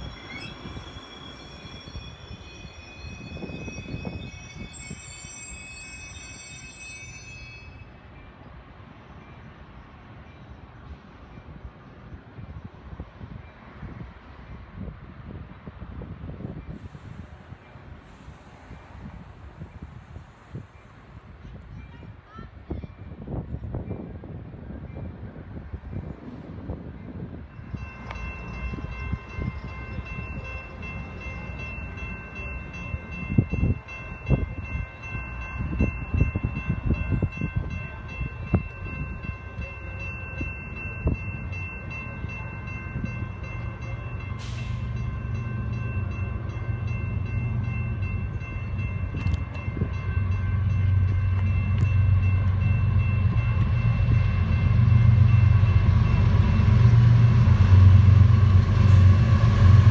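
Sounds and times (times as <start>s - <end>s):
crossing warning bells ringing: 0.0s - 10.7s, 26.8s - 59.9s
diesel locomotive rumble: 25.1s - 59.9s.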